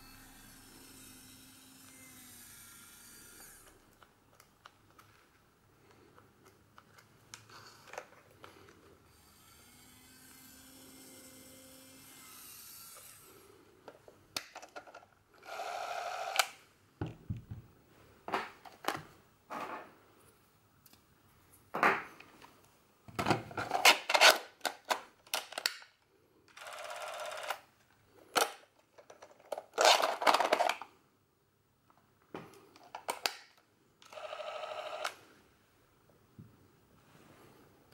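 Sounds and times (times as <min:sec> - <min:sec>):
camera parts scraping: 0:23.6 - 0:25.8, 0:28.3 - 0:30.8.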